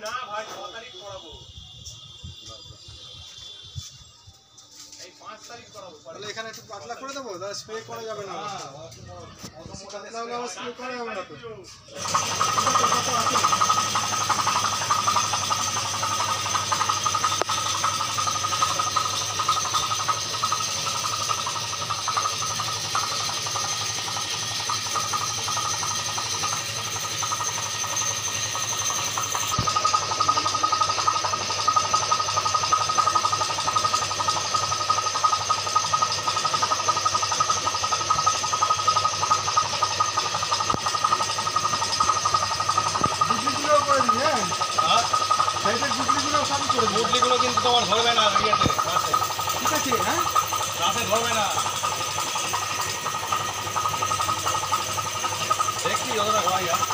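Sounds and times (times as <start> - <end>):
machine humming and hissing: 11.7 - 56.9.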